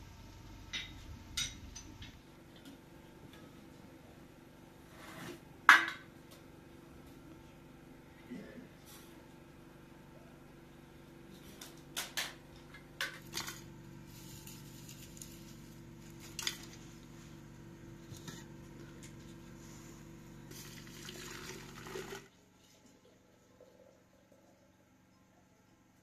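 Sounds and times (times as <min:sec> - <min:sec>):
water pouring into teapot: 0:20.6 - 0:22.3.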